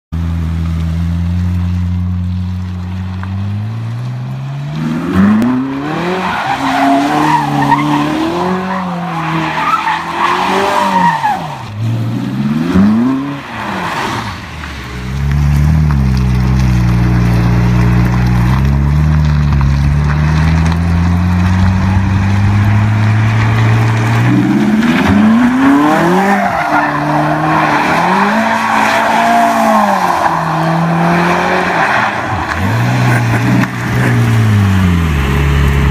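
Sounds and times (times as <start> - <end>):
car engine revving: 0.2 - 35.9
tyres squealing: 5.6 - 11.7.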